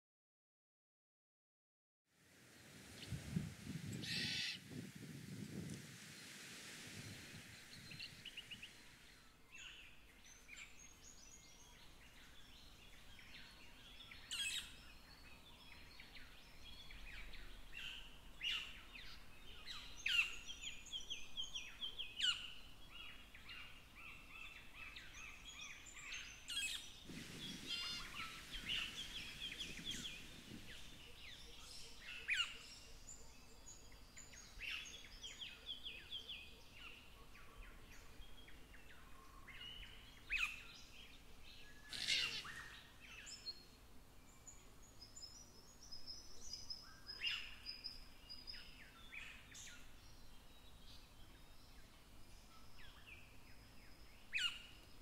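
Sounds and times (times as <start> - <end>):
cockatoos calling: 4.0 - 4.6, 27.2 - 31.0, 41.9 - 42.8
short rush of noise: 27.0 - 31.0.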